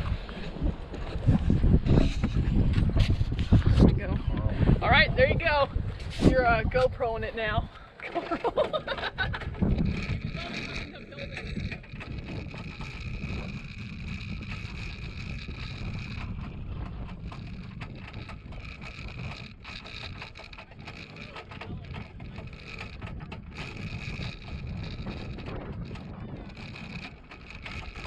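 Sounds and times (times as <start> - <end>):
metal cart rattling and jolting: 8.0 - 28.0
low rumble: 8.7 - 28.0.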